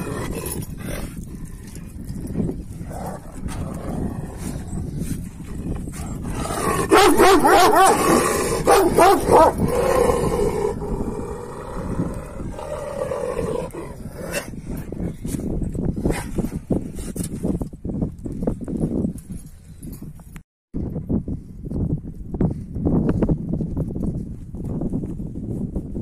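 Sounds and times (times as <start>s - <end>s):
dogs growling and snarling: 0.0s - 17.2s.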